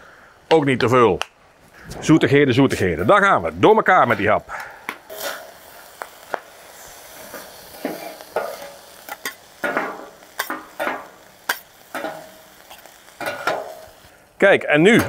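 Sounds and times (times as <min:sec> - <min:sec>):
food sizzling: 0:02.0 - 0:15.0
metal spatulas scraping griddle: 0:05.1 - 0:05.6, 0:07.1 - 0:13.8.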